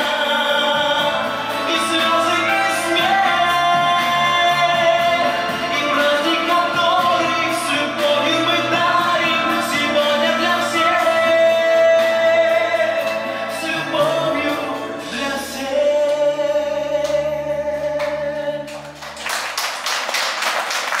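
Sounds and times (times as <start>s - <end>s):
person singing over backing track: 0.0s - 19.0s
applause: 18.0s - 21.0s.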